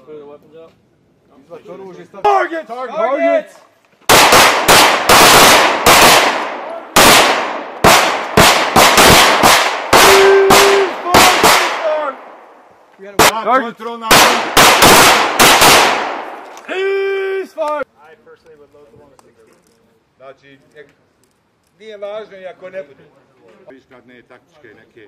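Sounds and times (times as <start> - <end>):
pistol shots echoing: 4.1 - 12.5, 14.1 - 16.5.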